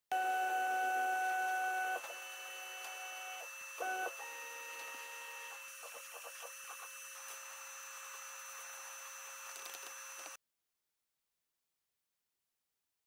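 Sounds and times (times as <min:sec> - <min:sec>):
stepper motors whining: 0:00.2 - 0:07.0.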